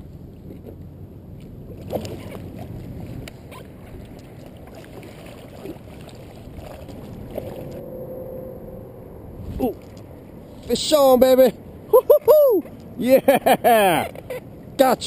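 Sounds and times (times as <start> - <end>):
water lapping and sloshing: 0.0 - 7.9, 9.4 - 13.0.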